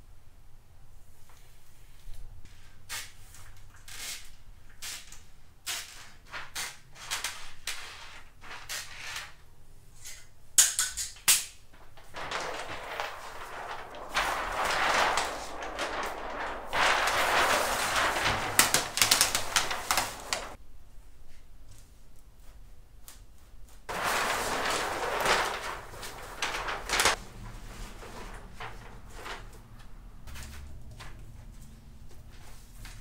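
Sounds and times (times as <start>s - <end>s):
plastic sheet crinkling: 11.6s - 20.6s, 23.8s - 31.4s.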